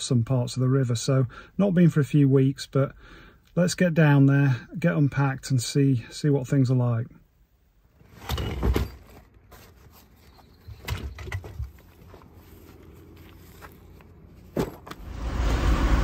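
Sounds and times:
gear knocks and clunks: 0:10.7 - 0:11.9
fabric rustling: 0:11.7 - 0:14.8
low rumble: 0:15.0 - 0:16.0.

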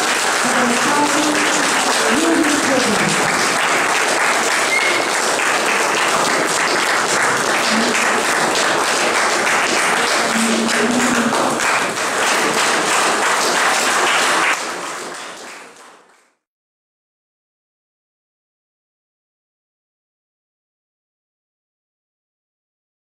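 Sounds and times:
audience applauding: 0:00.0 - 0:16.4
faint voices: 0:00.4 - 0:03.6, 0:07.2 - 0:13.0.

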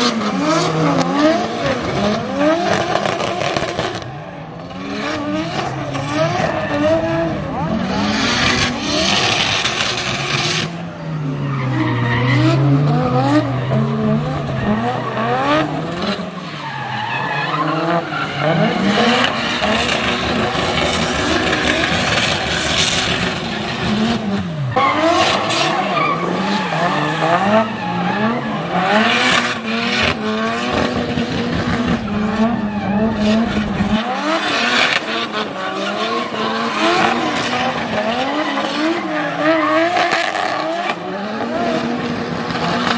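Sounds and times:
car engines revving: 0:00.0 - 0:42.9
tyres squealing on wet tarmac: 0:16.4 - 0:23.6, 0:24.6 - 0:30.1.

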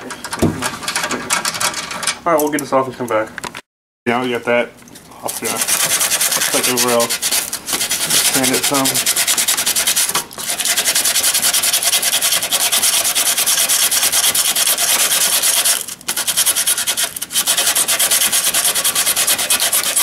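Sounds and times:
sandpaper rubbing on metal: 0:05.3 - 0:20.0.

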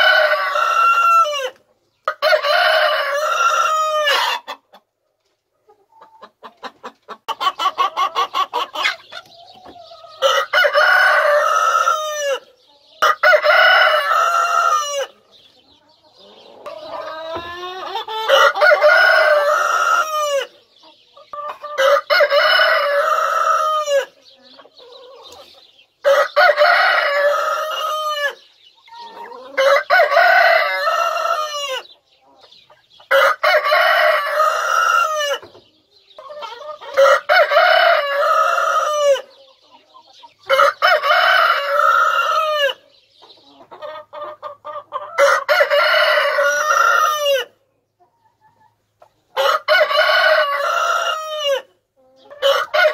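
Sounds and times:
hens clucking softly: 0:00.0 - 0:52.9
rooster crowing: 0:18.2 - 0:20.5, 0:26.1 - 0:28.4, 0:45.2 - 0:47.5, 0:49.4 - 0:51.7, 0:52.4 - 0:52.9.

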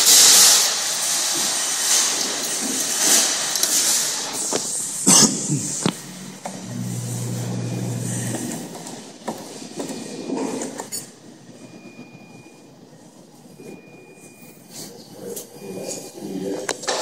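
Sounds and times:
claw machine motor hum: 0:05.8 - 0:08.9.

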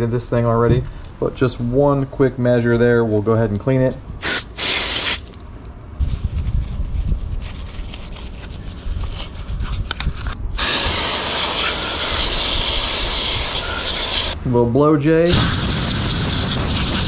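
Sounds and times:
hose spray nozzle hissing: 0:04.2 - 0:05.3, 0:10.5 - 0:14.4.

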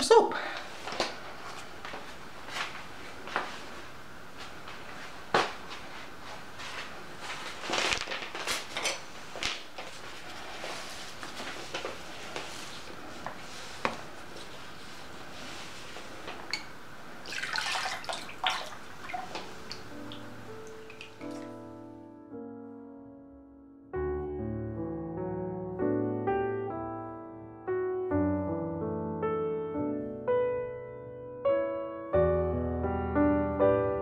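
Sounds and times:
liquid pouring into plastic bowl: 0:16.6 - 0:21.5.

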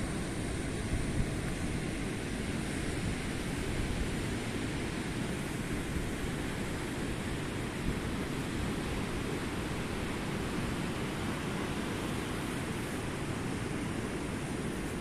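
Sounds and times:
sea surf: 0:00.0 - 0:15.0.

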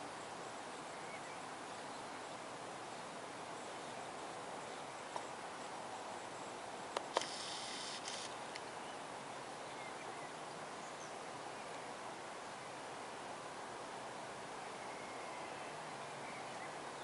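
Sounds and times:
outdoor background noise: 0:00.0 - 0:17.0
sharp clicks: 0:07.0 - 0:08.7
brief high hiss: 0:07.1 - 0:08.4.

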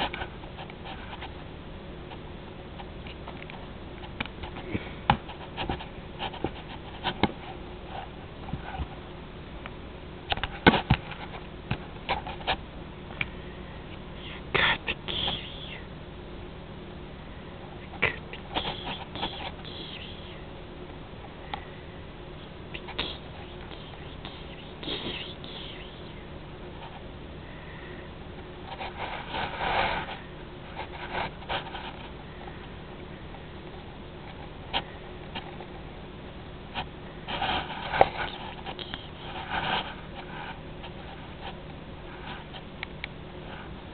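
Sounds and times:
steady low hum: 0:00.0 - 0:43.9
cat sniffing against microphone: 0:14.1 - 0:15.9, 0:17.8 - 0:20.5, 0:22.7 - 0:27.0, 0:37.3 - 0:41.0.

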